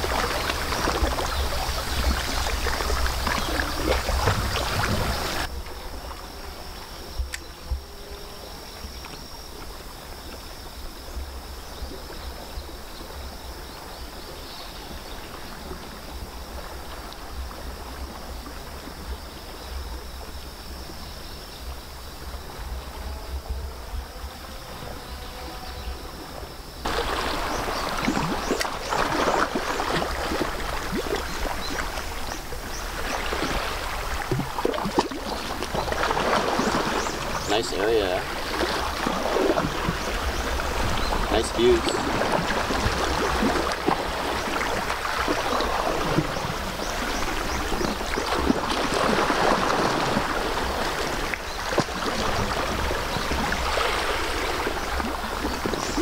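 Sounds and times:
sea water lapping against rocks: 0.0s - 6.3s, 26.8s - 56.0s
water splashes: 0.0s - 7.8s, 26.1s - 56.0s
low wind rumble: 0.0s - 8.1s.

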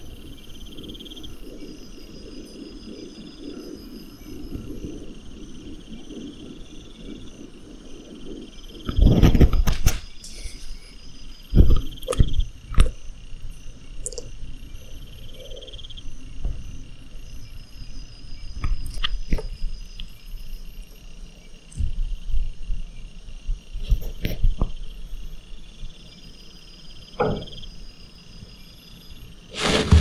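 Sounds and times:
crickets chirping: 0.0s - 30.0s
thumps and rustling: 29.5s - 30.0s
sharp knocks: 29.6s - 30.0s.

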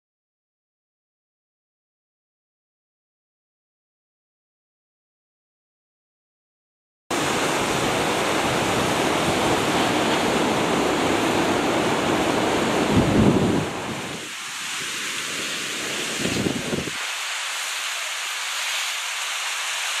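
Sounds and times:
wind buffeting microphone: 7.2s - 17.0s.

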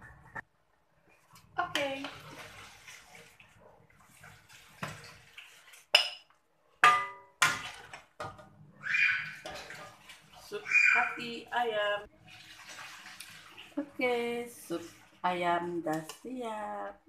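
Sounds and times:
soup splashing and pouring: 1.1s - 6.4s, 8.8s - 11.5s, 12.1s - 15.2s.

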